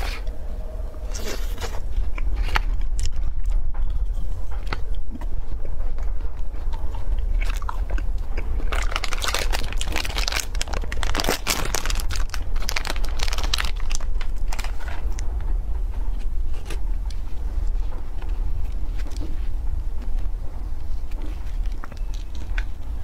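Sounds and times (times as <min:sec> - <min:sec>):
biting and chewing ice cream: 0:00.0 - 0:23.0
plastic package tearing: 0:08.7 - 0:15.0.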